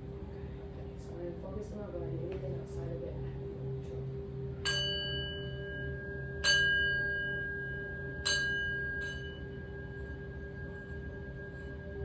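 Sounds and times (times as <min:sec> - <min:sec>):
low steady hum: 0:00.0 - 0:12.0
metal chime ringing: 0:04.6 - 0:12.0.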